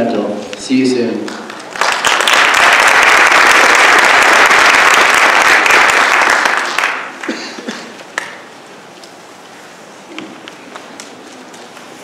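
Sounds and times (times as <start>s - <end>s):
audience applause: 1.3s - 8.5s.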